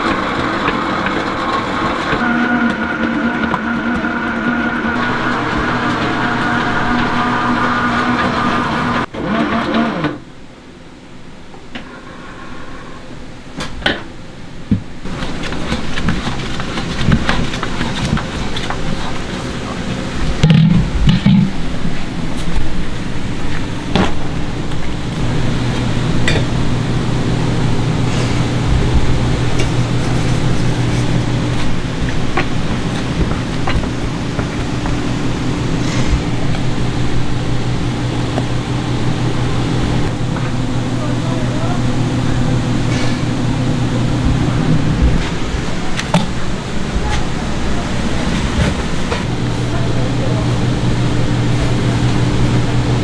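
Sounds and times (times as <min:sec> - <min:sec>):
dough mixer motor humming: 0:00.0 - 0:10.2, 0:22.9 - 0:53.0.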